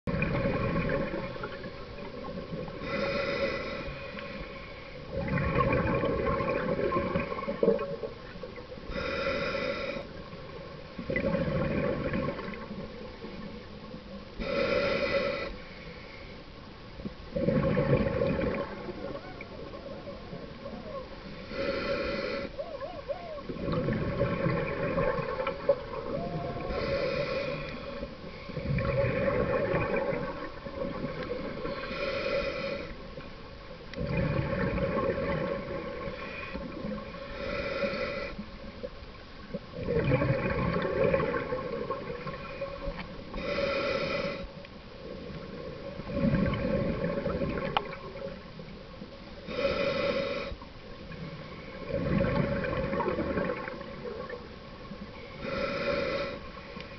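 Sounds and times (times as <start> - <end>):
diver inhaling through regulator: 2.7 - 5.2, 8.9 - 10.2, 14.4 - 16.4, 21.2 - 22.6, 26.6 - 30.0, 31.4 - 33.1, 36.0 - 38.4, 42.4 - 44.6, 49.4 - 50.6, 55.2 - 56.9
bubbling exhale: 17.4 - 33.0.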